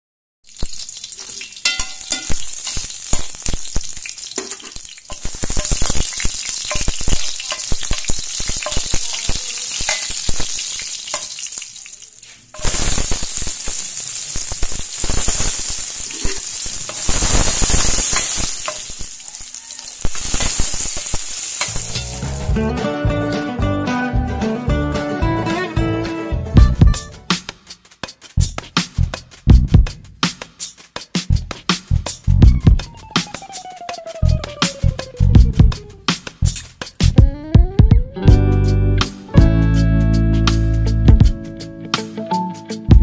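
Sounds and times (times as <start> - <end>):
garlic and onions sizzling in oil: 0.5 - 22.6
metal spoon clicking against pan: 1.6 - 3.6, 4.4 - 11.6.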